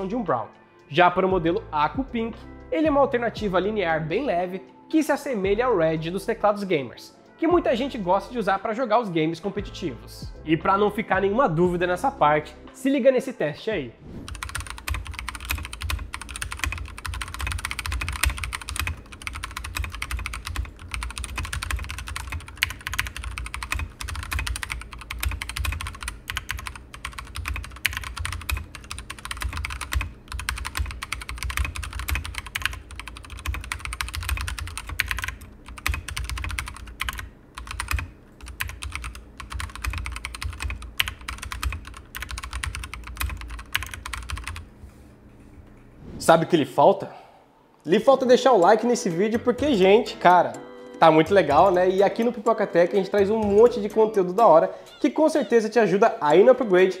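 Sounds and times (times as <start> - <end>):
mechanical keyboard typing: 14.2 - 44.6, 51.4 - 54.4.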